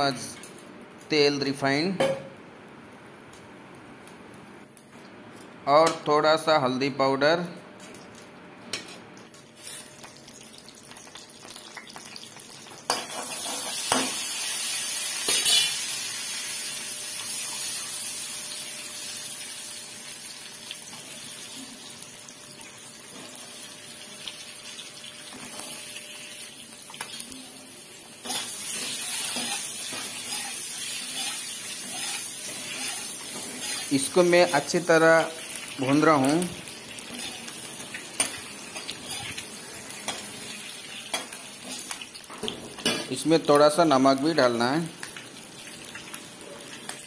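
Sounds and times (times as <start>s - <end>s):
eggs sizzling in hot oil: 7.9s - 47.0s.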